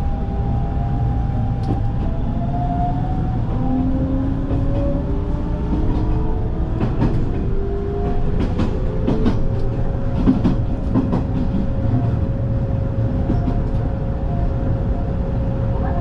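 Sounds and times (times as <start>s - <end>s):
train rumbling inside carriage: 0.0s - 16.0s.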